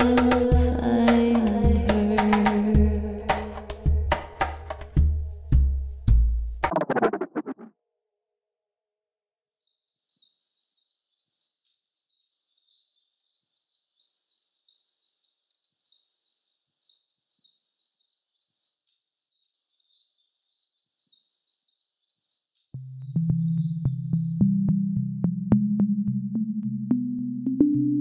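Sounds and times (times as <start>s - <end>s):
high bird chirping: 22.2s - 24.7s.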